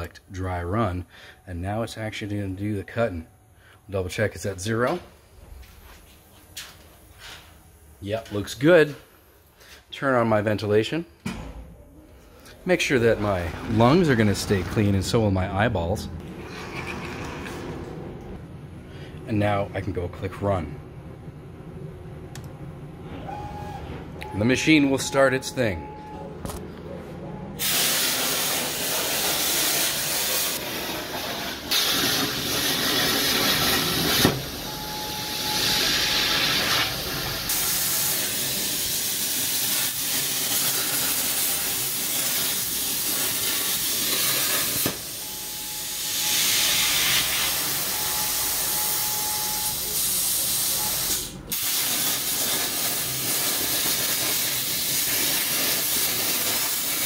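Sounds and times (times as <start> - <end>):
plasma torch hissing: 27.6 - 34.6, 35.3 - 49.0, 49.8 - 57.0.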